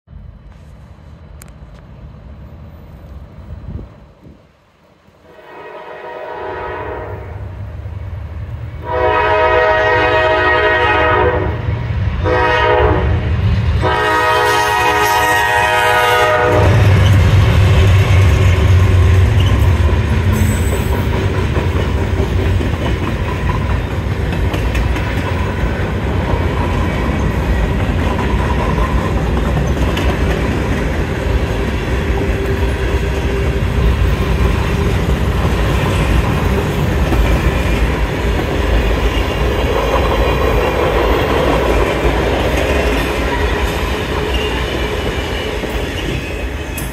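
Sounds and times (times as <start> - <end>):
diesel locomotive engines: 0.1 - 46.9
train wheels clattering on rails: 16.4 - 46.9.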